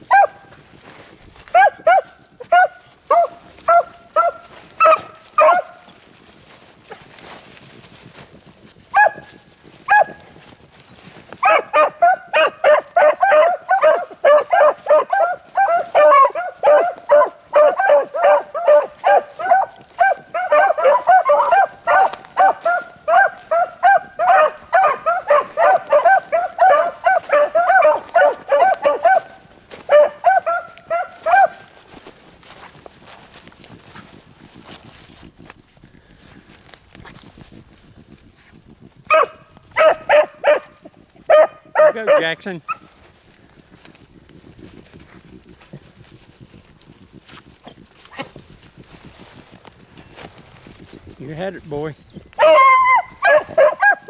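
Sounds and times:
hounds baying: 0.0s - 6.0s, 8.9s - 33.2s, 39.1s - 46.3s, 50.6s - 54.0s.

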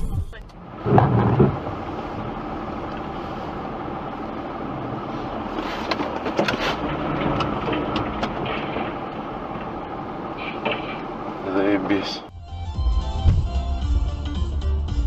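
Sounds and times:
vehicle running: 0.0s - 15.0s
sharp clicks and rattles: 5.8s - 11.9s.

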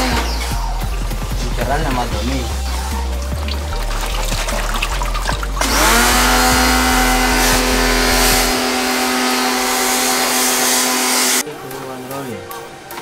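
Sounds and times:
water jet hissing: 1.9s - 11.4s
pressure washer motor humming: 2.8s - 11.4s.

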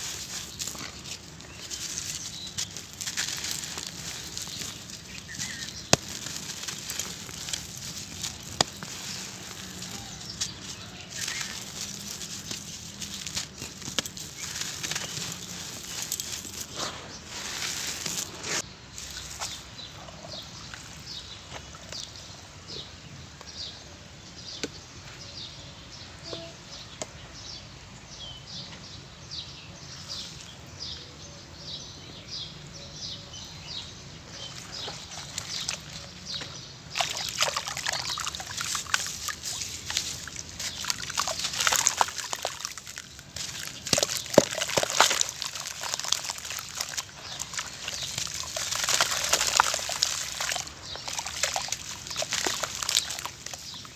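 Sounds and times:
hands swishing water in basin: 0.0s - 18.6s, 36.9s - 53.9s
water splashing: 0.0s - 18.6s, 36.9s - 53.9s
gritty crunching: 0.0s - 19.8s, 34.3s - 53.9s.

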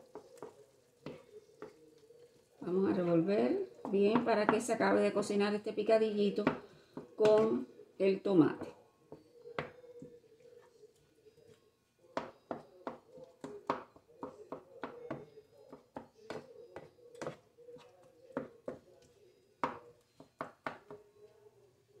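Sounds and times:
wooden spoon scraping a pan: 0.0s - 7.7s, 8.5s - 11.6s, 12.2s - 21.1s.

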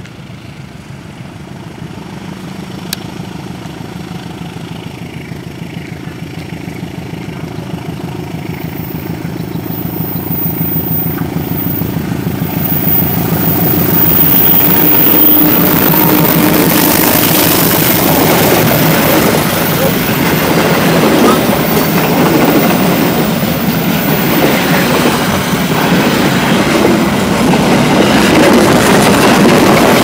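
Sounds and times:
diesel locomotive engine pulsing: 0.0s - 30.0s
train wheels rolling on rails: 6.3s - 30.0s.

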